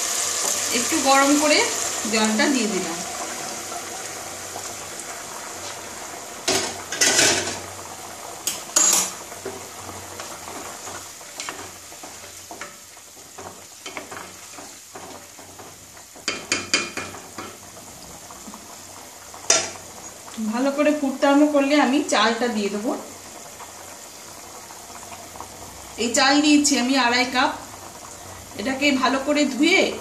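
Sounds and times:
chicken sizzling in a pot: 0:00.0 - 0:30.0
spatula scraping and knocking pot: 0:10.2 - 0:17.6.

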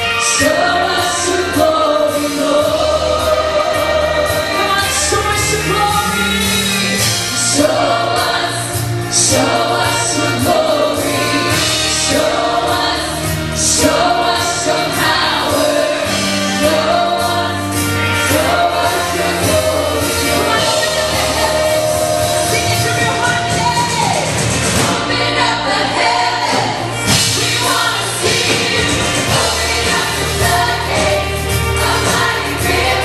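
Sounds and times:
bass: 0:00.0 - 0:33.0
choir singing: 0:00.0 - 0:33.0
drum cymbals: 0:00.0 - 0:33.0.

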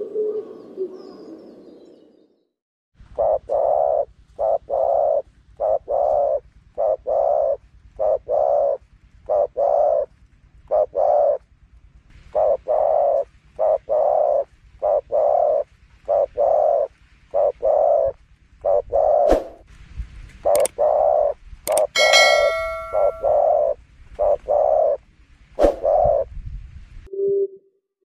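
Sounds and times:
dove cooing: 0:00.0 - 0:01.5, 0:03.1 - 0:10.1, 0:10.7 - 0:11.4, 0:12.4 - 0:19.3.

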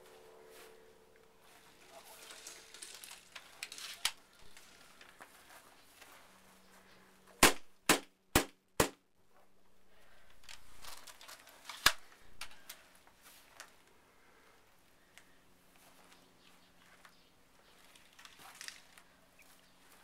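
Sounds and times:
airsoft gun shots: 0:07.4 - 0:09.0.

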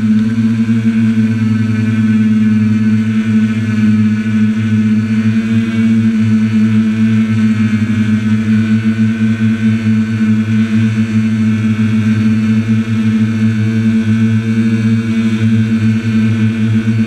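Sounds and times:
drone motors humming: 0:00.0 - 0:17.0.

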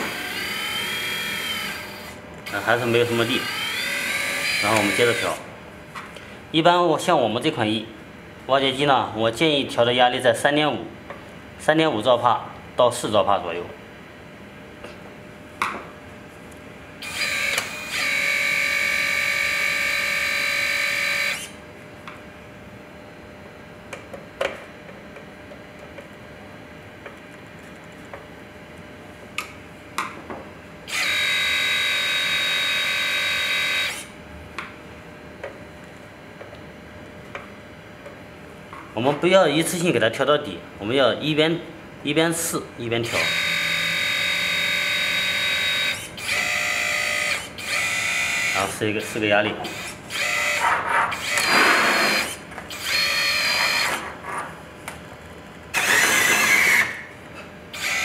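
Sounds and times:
hydraulic pump high whine: 0:00.0 - 0:05.5, 0:17.0 - 0:21.6, 0:30.8 - 0:34.2, 0:43.0 - 0:54.2, 0:55.7 - 0:58.0.

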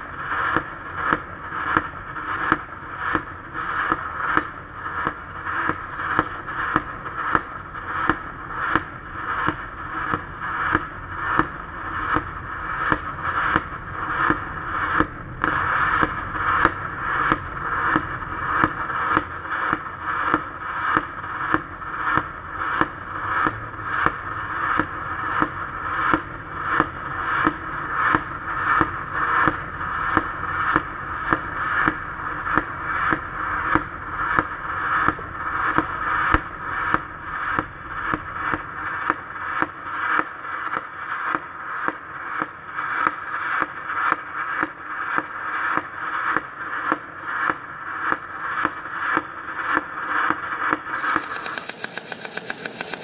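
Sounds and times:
welding arc crackling: 0:50.9 - 0:53.0.

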